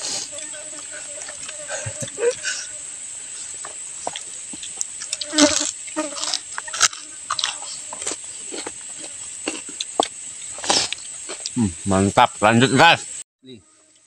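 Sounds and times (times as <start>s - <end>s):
insects droning: 0.0s - 14.0s
crunching of food being eaten: 4.1s - 11.6s.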